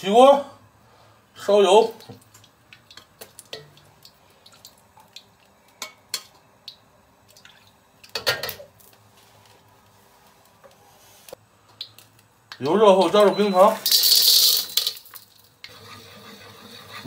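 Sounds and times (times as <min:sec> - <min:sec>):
metal ladle scraping wok: 0:15.7 - 0:17.0.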